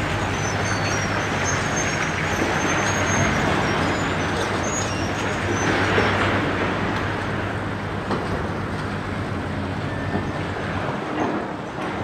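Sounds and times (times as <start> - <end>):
diesel engine rumble: 0.0 - 12.0.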